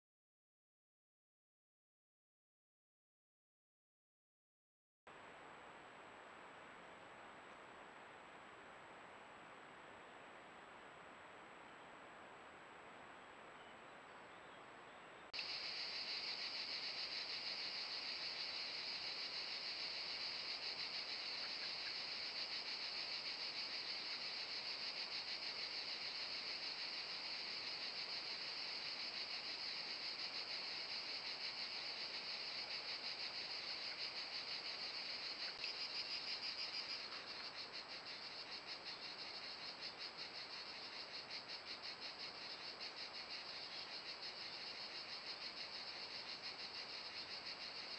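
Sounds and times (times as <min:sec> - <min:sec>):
crickets chirping: 0:13.6 - 0:47.9.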